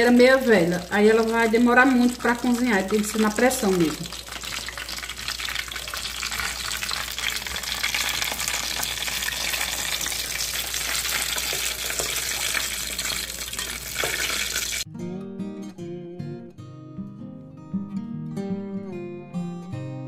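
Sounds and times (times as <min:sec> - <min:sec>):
fat sizzling in a frying pan: 0:00.0 - 0:14.9
acoustic guitar music: 0:14.8 - 0:20.0.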